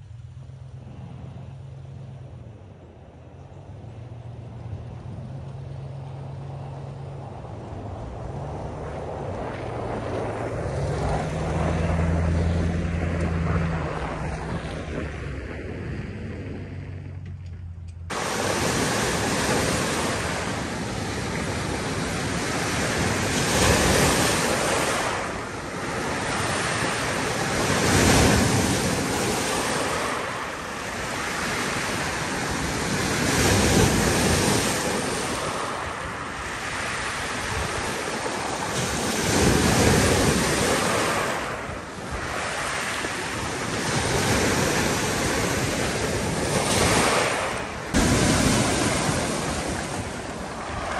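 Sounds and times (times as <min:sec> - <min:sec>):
waves washing up pebble beach: 0:18.1 - 0:50.9.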